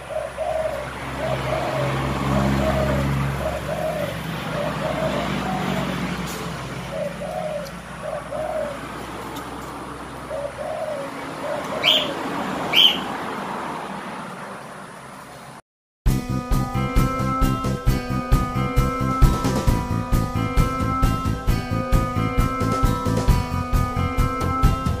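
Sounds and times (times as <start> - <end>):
dove cooing: 0.0 - 13.2
sharp high bird chirps: 11.6 - 13.2.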